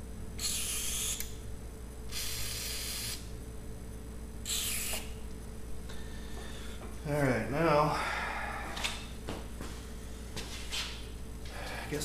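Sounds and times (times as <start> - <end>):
aerosol spray can hissing: 4.5 - 5.1.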